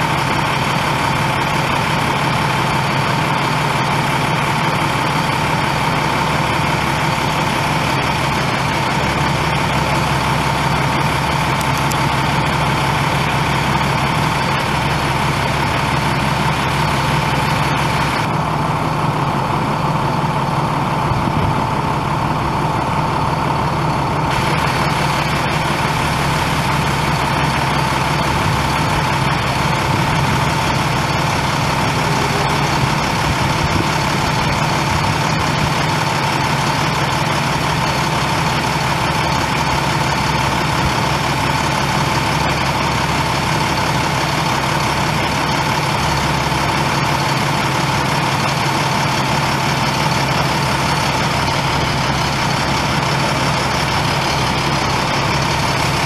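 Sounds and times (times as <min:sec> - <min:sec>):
diesel engine idling: 0:00.0 - 0:56.0
high-pitched whine: 0:29.2 - 0:35.7.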